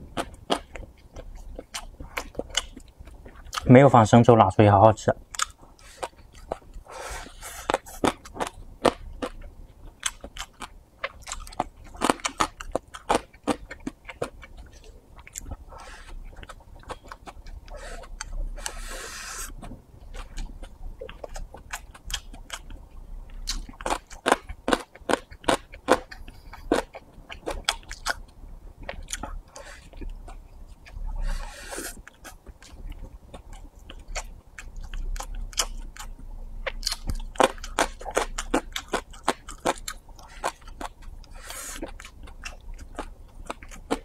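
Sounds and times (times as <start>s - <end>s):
chewing with wet mouth clicks: 0.2s - 3.7s, 5.3s - 6.8s, 7.7s - 18.8s, 32.0s - 41.2s, 41.8s - 44.0s.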